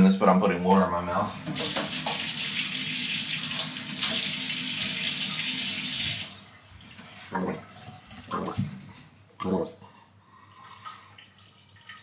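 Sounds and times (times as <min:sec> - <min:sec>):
tap running water: 0:01.3 - 0:09.0.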